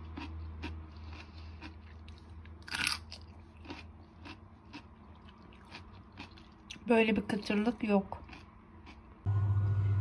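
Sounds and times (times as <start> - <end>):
chewing crunchy pickle: 0.0 - 6.9, 8.2 - 9.2.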